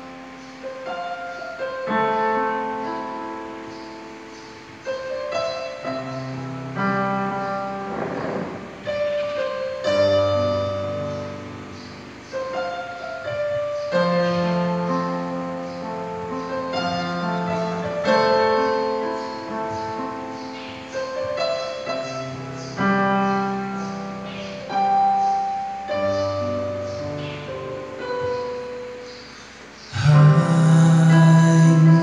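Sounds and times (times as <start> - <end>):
piano sustained chords: 0.0 - 32.0.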